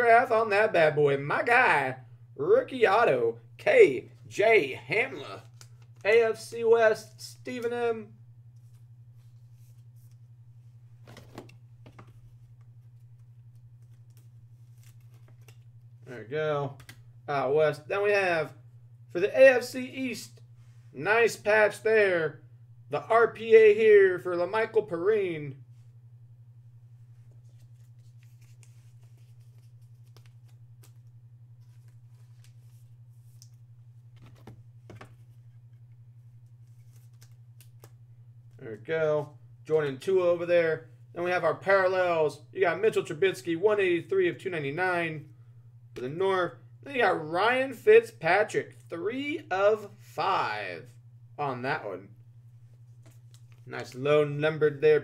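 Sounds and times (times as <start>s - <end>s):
low electrical hum: 0.0s - 55.0s.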